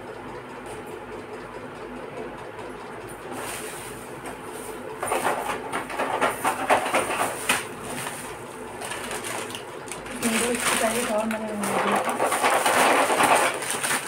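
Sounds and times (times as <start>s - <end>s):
plastic bag rustling: 5.1s - 14.0s.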